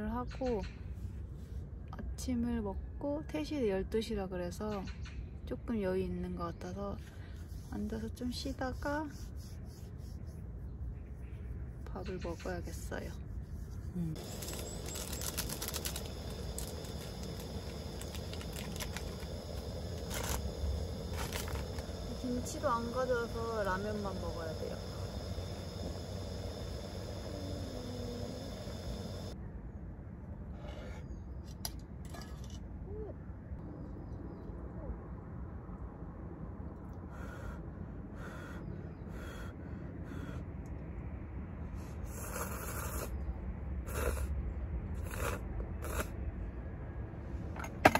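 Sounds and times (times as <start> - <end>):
steady low rumble: 5.2 - 32.4
packet crinkling: 14.2 - 22.1
gas stove burning: 14.2 - 29.4
crow cawing: 38.2 - 40.4
loud slurp from metal cup: 42.1 - 43.1, 43.9 - 44.3, 45.0 - 46.1.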